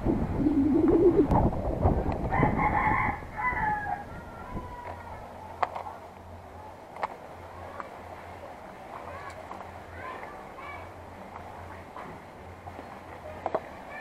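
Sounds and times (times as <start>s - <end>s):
low wavering sound: 0.0s - 2.3s
loud rumbling: 0.0s - 3.4s
rooster crowing: 2.3s - 5.2s.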